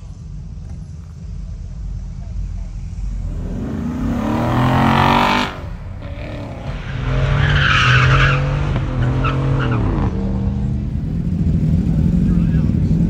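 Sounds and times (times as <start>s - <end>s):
car engine accelerating hard: 0.0s - 13.0s
vehicle accelerating hard: 0.0s - 13.0s
tyres squealing: 4.5s - 10.1s.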